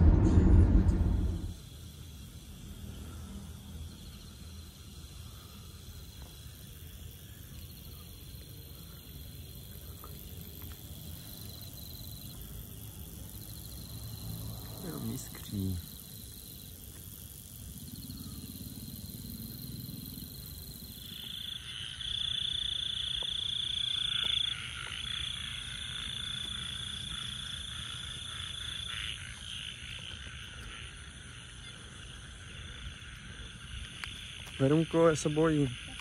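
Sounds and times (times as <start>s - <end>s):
frogs: 0.0s - 36.0s
high-pitched insect trilling: 0.1s - 36.0s.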